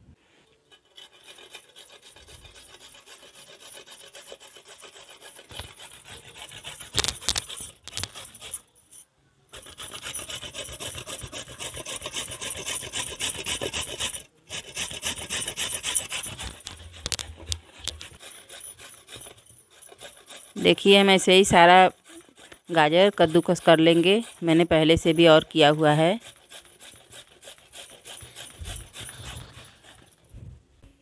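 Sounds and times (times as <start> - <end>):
carrot grated on metal grater: 0.7 - 8.7, 9.6 - 30.2.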